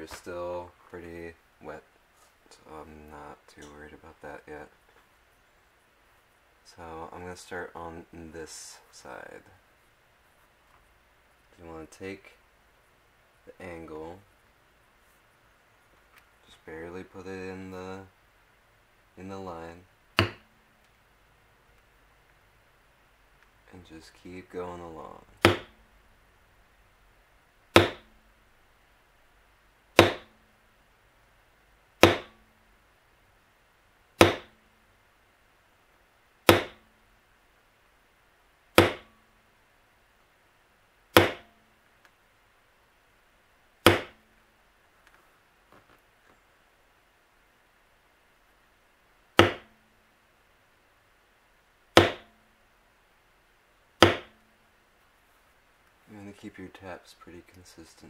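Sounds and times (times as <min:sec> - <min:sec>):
mallet tapping leather tool: 0:20.2 - 0:20.4, 0:25.4 - 0:25.8, 0:27.8 - 0:28.1, 0:30.0 - 0:30.4, 0:32.0 - 0:32.4, 0:34.2 - 0:34.6, 0:36.5 - 0:36.8, 0:38.8 - 0:39.2, 0:41.2 - 0:41.6, 0:43.9 - 0:44.2, 0:49.4 - 0:49.8, 0:52.0 - 0:52.3, 0:54.0 - 0:54.4.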